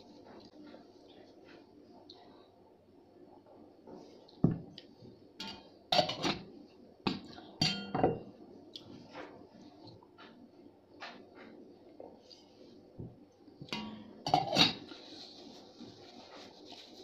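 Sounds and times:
metal mug clinking on tableware: 7.6s - 8.2s.

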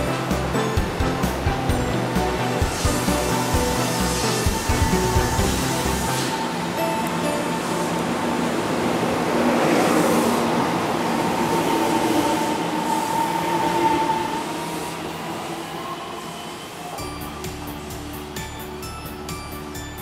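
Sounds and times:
music: 0.0s - 8.8s, 17.0s - 20.0s
train rolling past: 0.0s - 20.0s.

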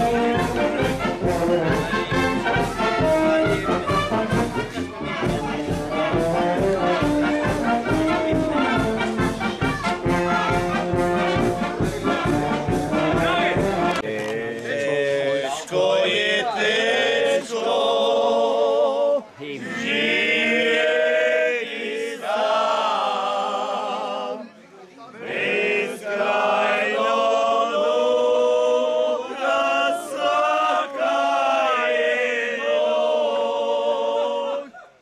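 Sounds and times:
men singing unaccompanied: 12.0s - 24.4s, 25.2s - 34.7s.

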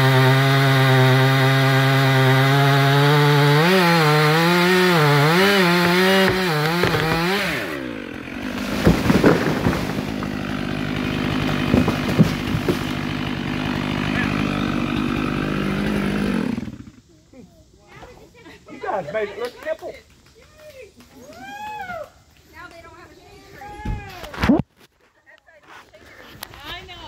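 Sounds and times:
chainsaw cutting wood: 0.0s - 17.0s
chainsaw idling: 0.0s - 17.1s
tree cracking and crashing down: 3.5s - 16.8s
wood snapping: 5.1s - 15.1s.

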